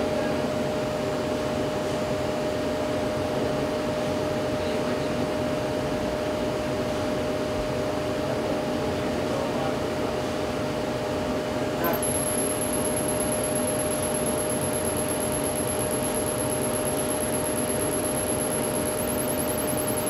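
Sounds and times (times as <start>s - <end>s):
constant high tone: 11.8s - 20.0s
machine hum and hiss: 11.8s - 20.0s.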